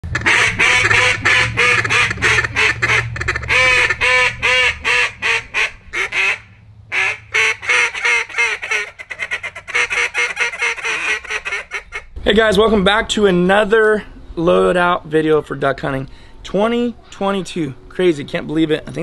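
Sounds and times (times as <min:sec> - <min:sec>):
waterfowl calls quacking and honking: 0:00.0 - 0:12.1.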